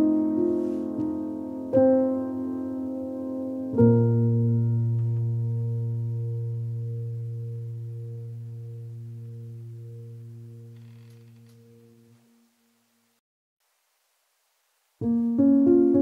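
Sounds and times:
piano chord ringing: 0.0 - 12.4.

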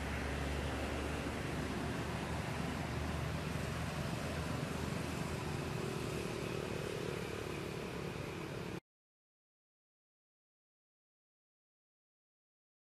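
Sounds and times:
low rumble and hiss: 0.0 - 8.8.

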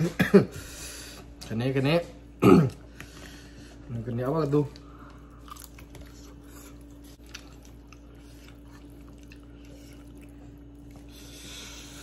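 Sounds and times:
steady low hum: 0.0 - 12.0
person chewing food: 4.7 - 12.0.

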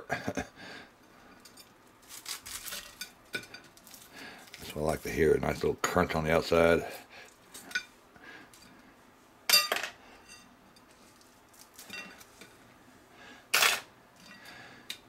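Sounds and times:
metal skewers clinking and scraping: 1.3 - 5.1, 9.5 - 12.5.

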